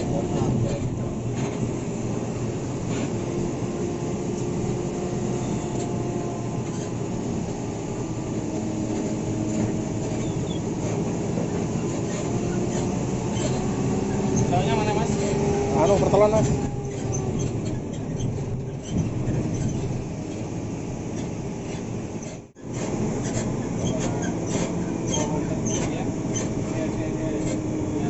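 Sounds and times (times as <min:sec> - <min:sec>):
diesel engine droning: 0:00.0 - 0:28.0
road rumble: 0:00.0 - 0:28.0.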